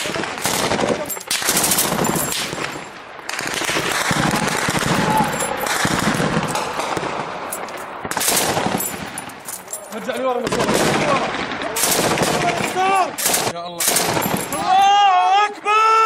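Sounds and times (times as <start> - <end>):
rapid automatic gunfire: 0.0 - 7.2, 8.1 - 8.8, 10.5 - 14.6.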